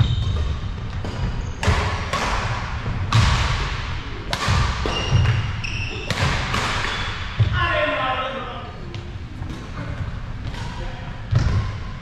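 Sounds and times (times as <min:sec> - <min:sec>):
racket hitting shuttlecock: 0:00.3 - 0:07.5.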